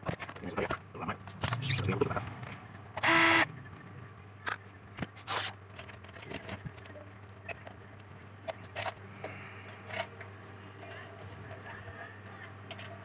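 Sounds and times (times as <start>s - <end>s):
motorized hand tool whirring: 3.0s - 3.5s.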